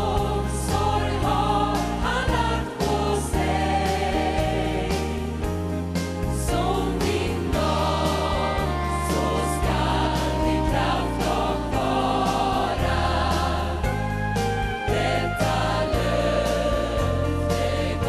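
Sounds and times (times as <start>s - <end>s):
bass line: 0.0s - 18.0s
gospel choir singing: 0.0s - 18.0s
live band accompaniment: 5.6s - 18.0s.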